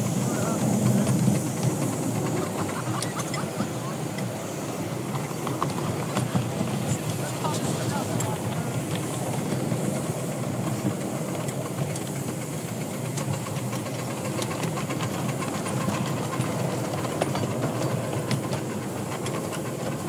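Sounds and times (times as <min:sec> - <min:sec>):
steam hissing from locomotive: 0:00.0 - 0:20.0
wheels clicking on rails: 0:00.0 - 0:20.0.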